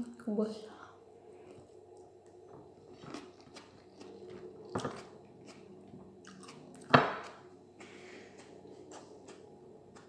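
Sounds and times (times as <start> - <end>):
chewing and mouth clicks: 1.4 - 6.9.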